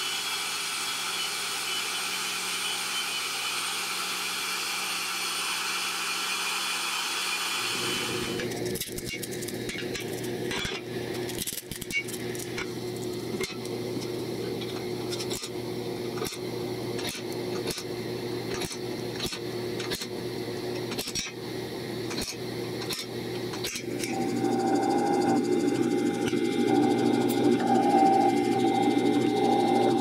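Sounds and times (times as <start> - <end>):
low hum: 23.9 - 30.0.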